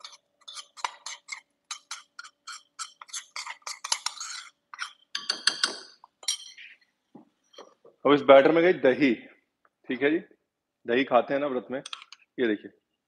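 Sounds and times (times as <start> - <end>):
metal spoon scraping a bowl: 0.0 - 6.8
spoon clattering: 0.0 - 6.8, 11.8 - 12.2.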